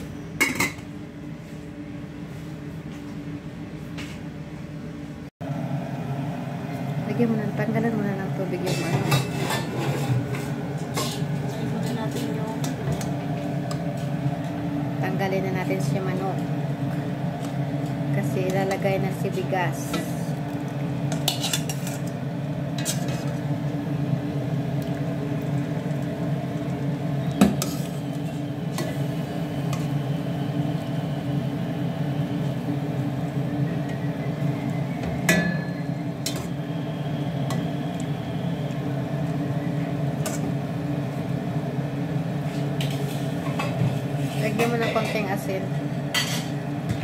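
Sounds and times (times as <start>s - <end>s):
metal spoon scraping a pot: 8.7s - 11.3s, 21.2s - 22.1s, 22.8s - 23.4s.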